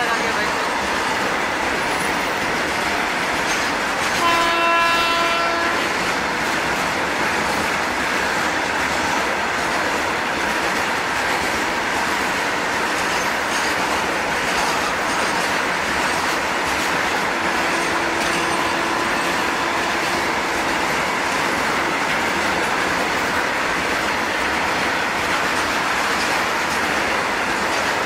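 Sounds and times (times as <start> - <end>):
freight train wheels rolling: 0.0 - 28.0
train horn: 4.1 - 5.9, 17.4 - 20.3.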